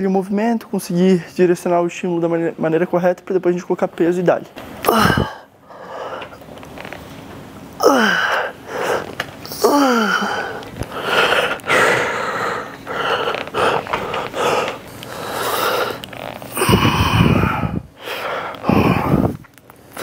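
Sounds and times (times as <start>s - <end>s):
person grunting with strain: 4.8s - 5.5s, 7.8s - 14.8s, 16.5s - 17.8s, 18.6s - 19.4s
person breathing forcefully: 4.9s - 6.4s, 7.8s - 20.0s.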